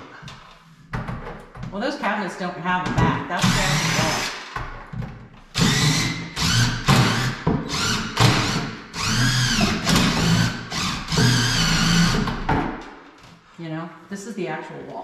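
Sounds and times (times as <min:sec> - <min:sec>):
cordless drill whine: 0:05.6 - 0:12.2.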